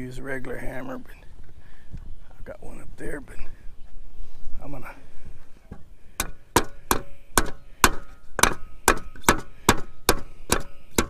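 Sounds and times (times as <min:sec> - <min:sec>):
wood block tapping on metal: 0:06.2 - 0:11.0.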